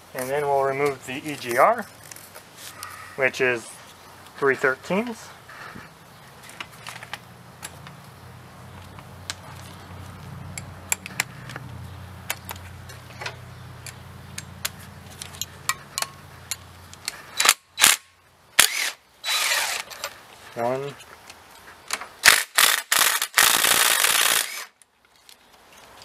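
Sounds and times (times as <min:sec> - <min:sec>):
sharp metal clicks of hand tools: 0:10.5 - 0:20.2.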